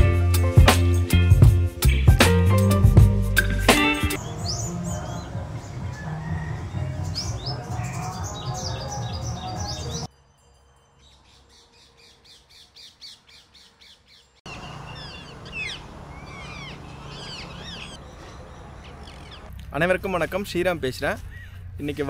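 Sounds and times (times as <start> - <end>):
background music: 0.0 - 10.1
parakeets squawking: 14.5 - 19.5.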